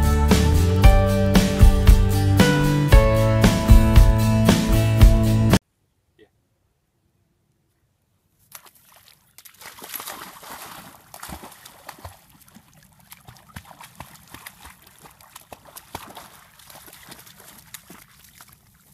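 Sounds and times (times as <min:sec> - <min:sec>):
puppy splashing in water: 0:08.4 - 0:18.9.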